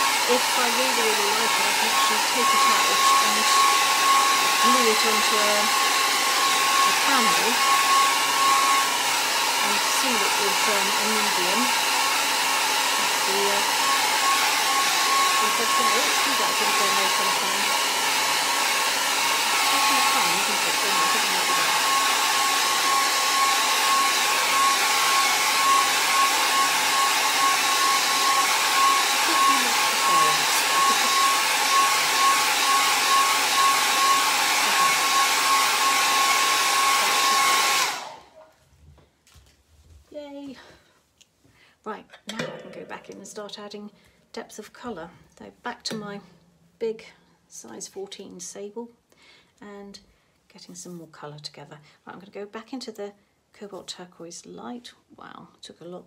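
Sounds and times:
hair dryer blowing: 0.0s - 38.5s.

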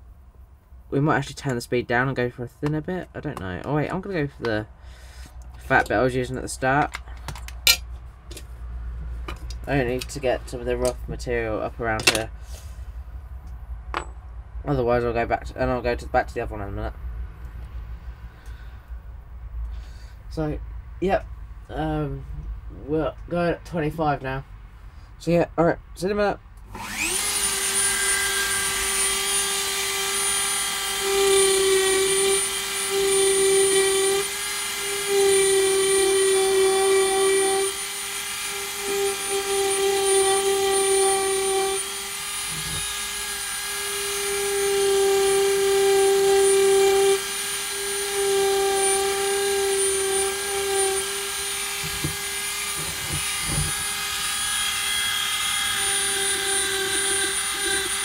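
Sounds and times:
rotary tool whining on wood: 26.7s - 58.0s.

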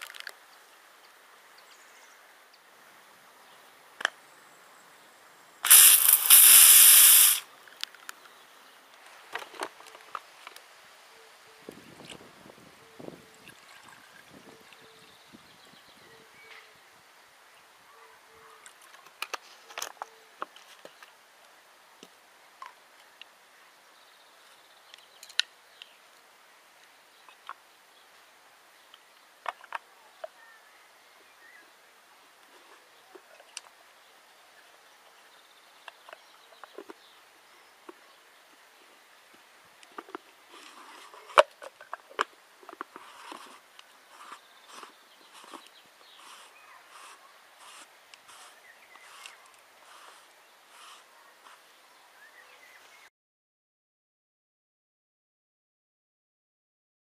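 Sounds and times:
water pouring from bottle: 5.6s - 7.4s, 13.4s - 14.3s
plastic thread scraping rasps: 42.9s - 51.0s.

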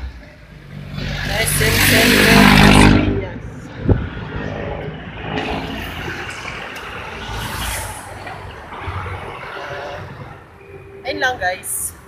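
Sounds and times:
vehicle engine and road noise: 0.0s - 12.0s.

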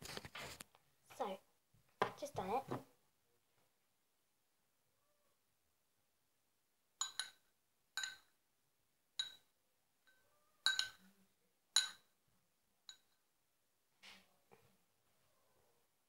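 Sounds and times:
metal spoon clinking in ceramic bowl: 7.0s - 8.4s, 9.2s - 11.1s, 11.7s - 12.1s, 12.8s - 13.2s.

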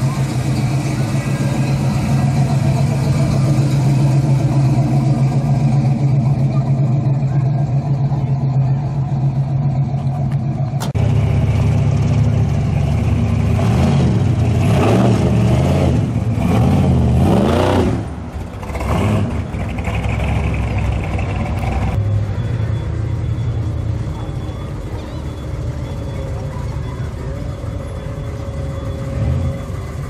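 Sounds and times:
pickup truck engine revving: 0.0s - 22.0s.

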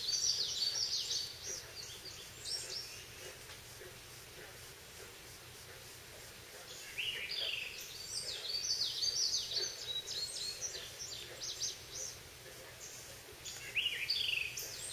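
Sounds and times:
songbirds singing: 0.0s - 14.9s
woodland background: 0.0s - 14.9s.

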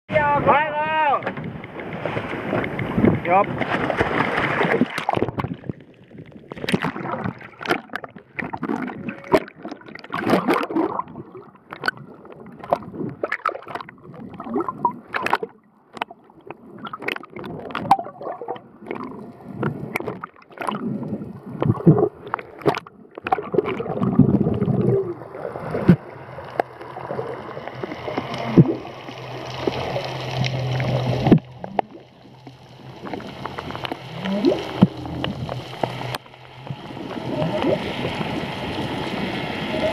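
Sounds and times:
underwater bubbling and splashing: 0.2s - 39.9s
whale song: 6.8s - 12.1s, 27.0s - 39.9s.

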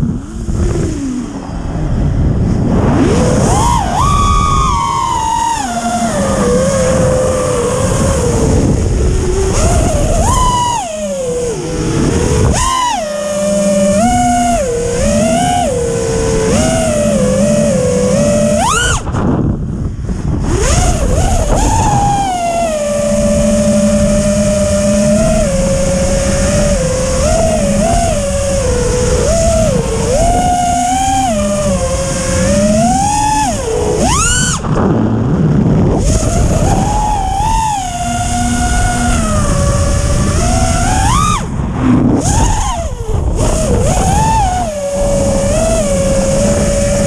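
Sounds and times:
rushing noise: 0.0s - 13.0s
drone motors whining: 0.0s - 47.0s.

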